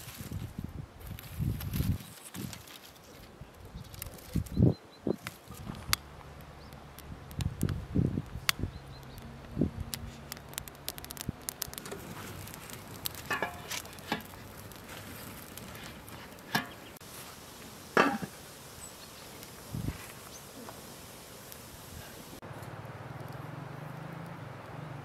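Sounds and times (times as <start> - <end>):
dry twigs crackling in fire: 0.0 - 24.8
metal pot knocking: 13.3 - 14.2.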